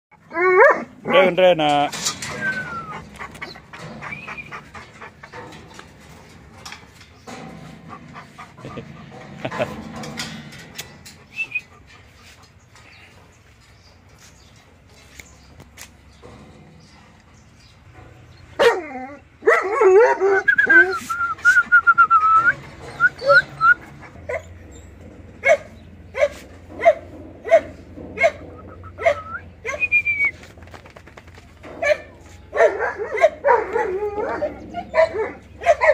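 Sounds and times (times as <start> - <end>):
dogs whining: 0.1 - 1.3, 2.0 - 13.0, 18.4 - 30.6, 31.6 - 35.9
dog whining: 0.2 - 1.0, 2.3 - 5.2, 18.6 - 24.6, 26.2 - 30.4
dogs panting: 2.4 - 14.0
dog barking: 31.8 - 34.0, 34.9 - 35.9.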